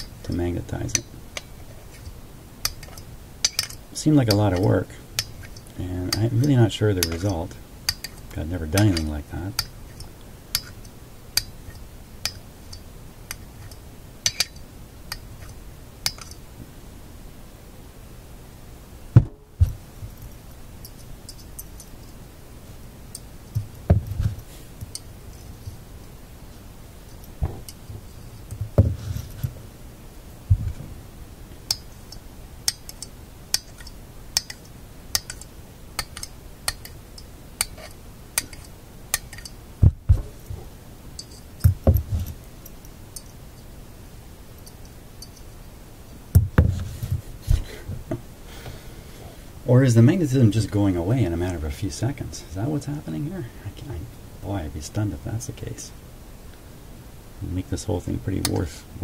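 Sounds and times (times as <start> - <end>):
magnets clicking together: 0.9 - 16.4, 31.7 - 39.6.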